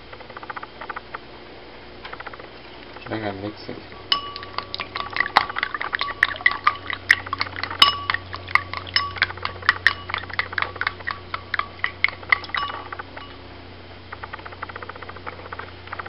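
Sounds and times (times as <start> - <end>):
chopsticks clicking against bowl: 4.0 - 13.4.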